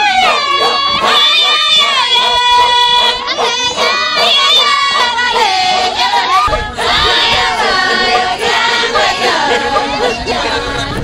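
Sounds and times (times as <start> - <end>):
group singing: 0.0 - 11.0
wind rumble on microphone: 6.3 - 11.0.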